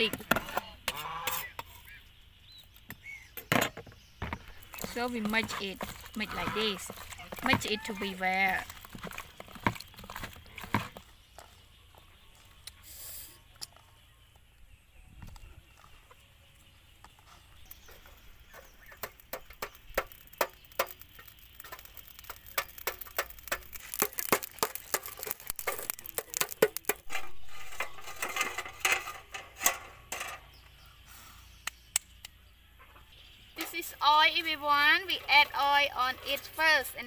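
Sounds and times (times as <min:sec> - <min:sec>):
charcoal stirred in metal grill: 0:00.0 - 0:02.0, 0:04.3 - 0:13.3, 0:15.7 - 0:30.8, 0:33.6 - 0:37.0.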